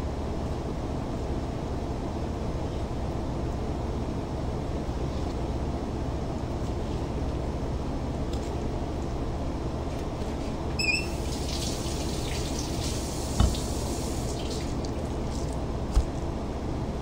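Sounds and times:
kitchen ventilation hum: 0.0s - 17.0s
water running at a sink: 10.8s - 15.6s.

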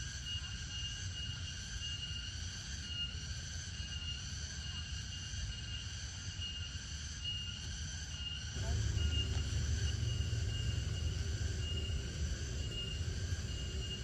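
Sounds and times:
insects droning: 8.2s - 14.0s
low rumble: 8.5s - 14.0s.

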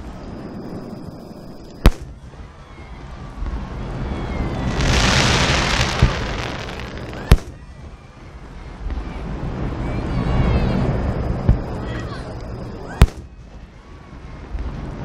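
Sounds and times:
firework shells bursting: 1.8s - 2.2s, 4.6s - 7.7s
crackling hiss of bursting stars: 3.2s - 8.3s.

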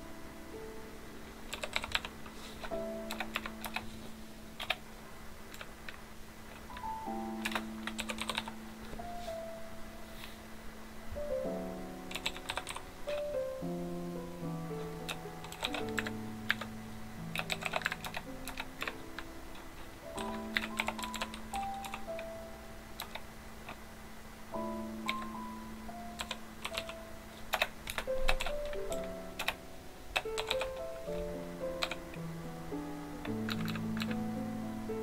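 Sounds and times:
slow background music: 0.0s - 5.8s, 6.6s - 35.0s
computer keyboard typing: 1.5s - 3.9s, 4.6s - 4.8s, 5.5s - 8.6s, 12.1s - 13.4s, 14.8s - 16.7s, 17.3s - 22.4s, 23.0s - 23.8s, 25.0s - 25.4s, 26.1s - 32.2s, 33.2s - 34.2s.

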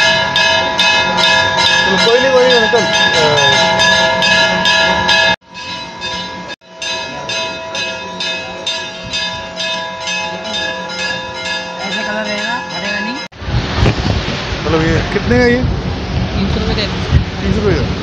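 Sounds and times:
temple bells ringing: 0.0s - 13.4s.

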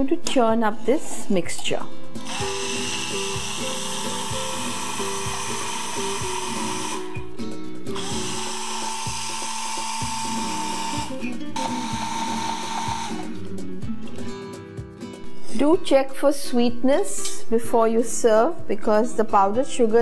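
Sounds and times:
soft background music: 0.0s - 20.0s
immersion blender running: 2.2s - 13.4s.

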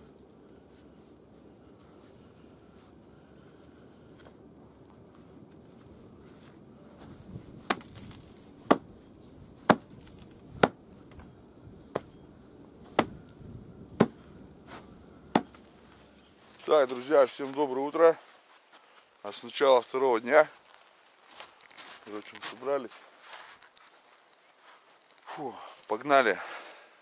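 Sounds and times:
hatchet chopping wood: 7.7s - 8.9s, 9.6s - 10.8s, 11.9s - 12.1s, 12.9s - 13.2s, 14.0s - 14.2s, 15.3s - 15.7s.

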